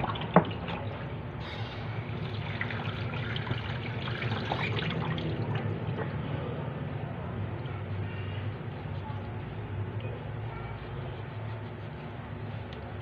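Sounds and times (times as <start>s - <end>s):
tap water running: 0.0s - 1.1s, 2.0s - 6.1s.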